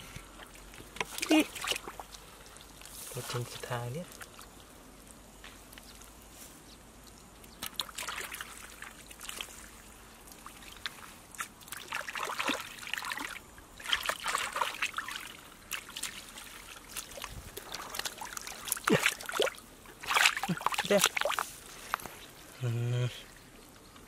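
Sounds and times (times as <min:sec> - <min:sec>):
hands splashing in muddy water: 0:07.5 - 0:21.6.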